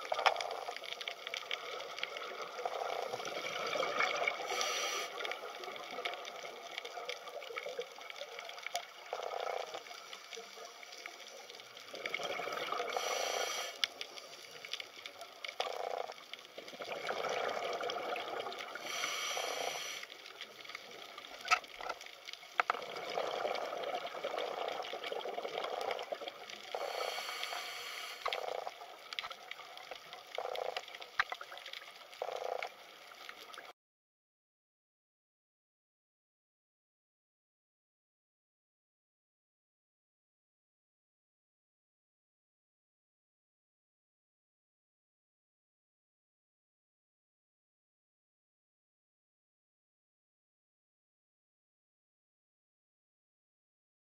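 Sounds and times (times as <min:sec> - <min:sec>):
rushes of bubbles: 0:00.0 - 0:10.4, 0:11.7 - 0:13.7, 0:14.5 - 0:22.0, 0:22.6 - 0:32.8
underwater bubbling and sloshing: 0:00.0 - 0:33.7.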